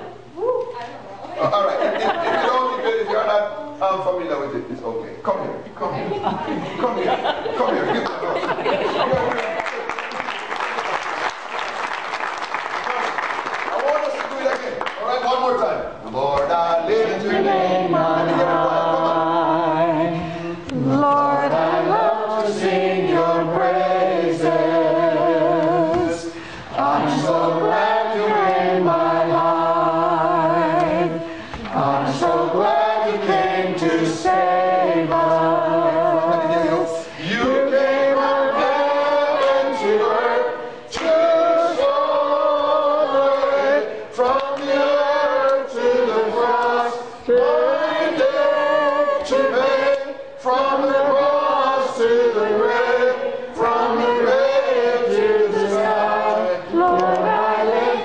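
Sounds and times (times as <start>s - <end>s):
man singing gospel: 16.4s - 58.0s.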